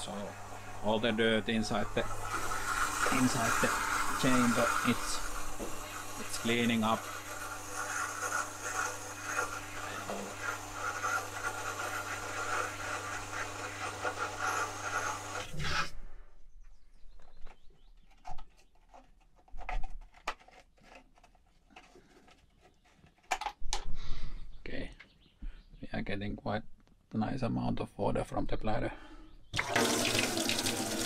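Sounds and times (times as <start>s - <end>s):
water pump humming: 0.0s - 15.6s, 29.6s - 31.0s.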